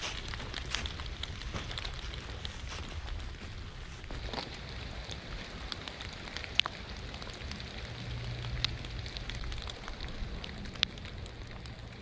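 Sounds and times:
steady rainfall: 0:00.0 - 0:12.0
raindrops ticking sharply: 0:04.1 - 0:12.0.

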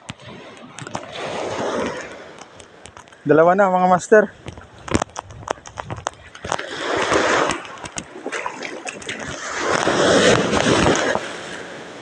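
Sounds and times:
water splashing in shallows: 0:00.2 - 0:02.9, 0:04.3 - 0:12.0.

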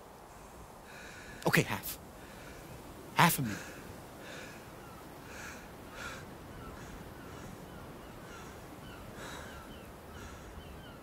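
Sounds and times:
bird calls: 0:04.2 - 0:11.0.

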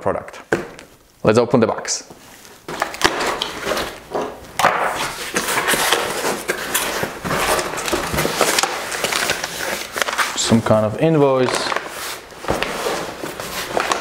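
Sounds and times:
cardboard flaps tearing: 0:02.7 - 0:10.5, 0:11.4 - 0:14.0
cardboard scraping and rustling: 0:02.7 - 0:14.0.

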